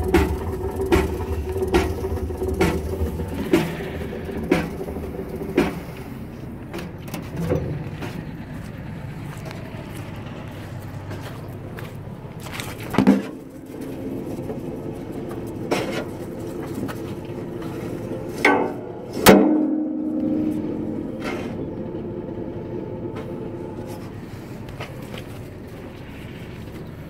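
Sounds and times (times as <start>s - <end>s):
sharp metallic knocks: 0.0s - 8.2s, 18.4s - 21.7s
straw chopper droning: 0.0s - 27.0s.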